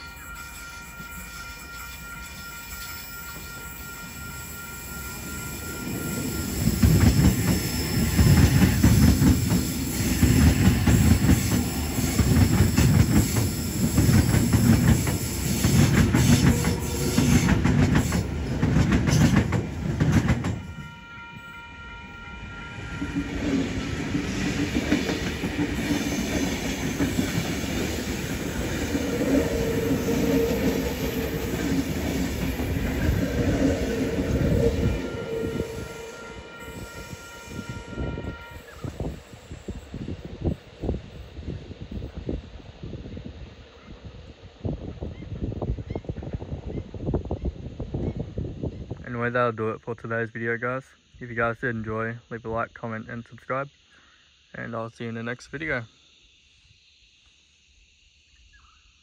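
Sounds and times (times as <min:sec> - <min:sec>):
train approaching drone: 0:00.0 - 0:47.4
train wheels clattering: 0:06.4 - 0:20.7.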